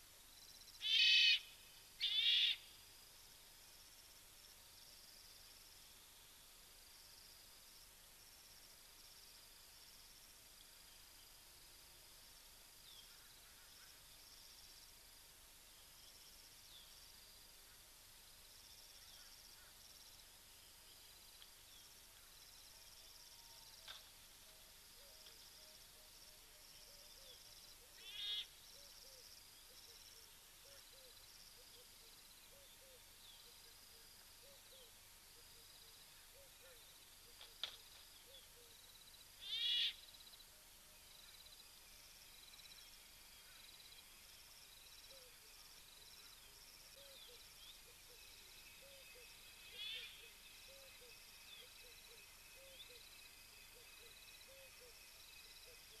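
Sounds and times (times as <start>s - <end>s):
insects chirping: 0.0s - 56.0s
short high animal calls: 0.8s - 2.6s, 39.4s - 40.0s
small animal calls: 0.8s - 2.7s, 27.0s - 33.7s, 39.4s - 40.0s, 48.9s - 53.0s.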